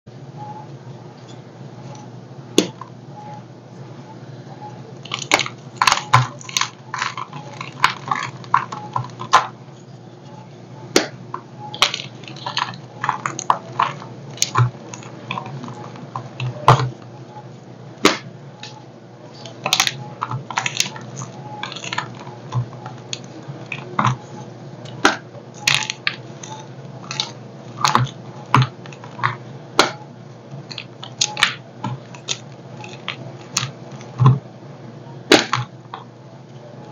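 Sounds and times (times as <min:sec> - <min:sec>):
chalk blocks crunching: 0:05.0 - 0:09.5, 0:11.8 - 0:17.0, 0:19.4 - 0:30.0, 0:30.6 - 0:34.4
chalk crumbling: 0:05.0 - 0:09.5.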